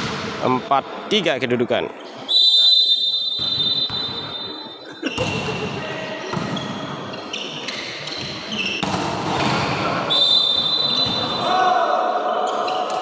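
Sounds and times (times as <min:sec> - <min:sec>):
players and crowd noise: 0:00.0 - 0:13.0
referee's whistle blast: 0:02.3 - 0:04.7, 0:10.1 - 0:11.5
shoe squeaks: 0:06.1 - 0:08.9.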